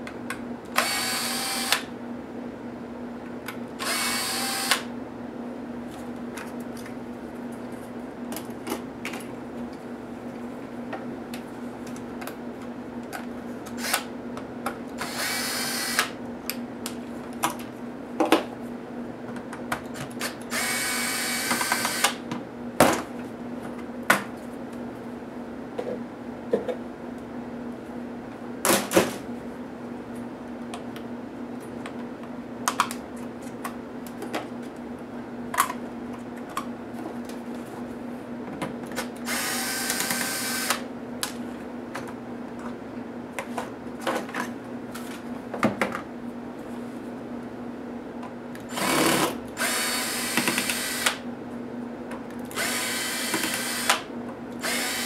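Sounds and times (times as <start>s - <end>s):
cordless drill spinning screws: 0.8s - 1.9s, 3.8s - 4.9s, 15.0s - 16.1s, 20.5s - 22.2s, 39.3s - 40.8s, 48.7s - 51.2s, 52.6s - 54.0s, 54.6s - 55.0s.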